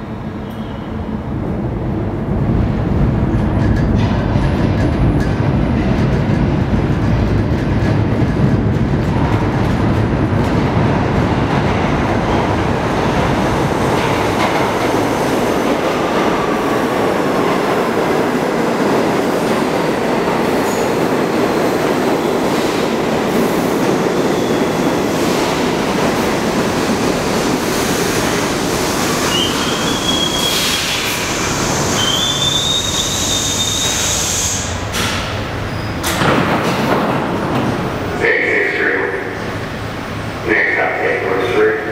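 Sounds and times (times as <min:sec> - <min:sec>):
train wheels rumbling on rails: 0:00.0 - 0:41.9
wheel and brake squeals: 0:29.3 - 0:31.0, 0:31.9 - 0:34.6.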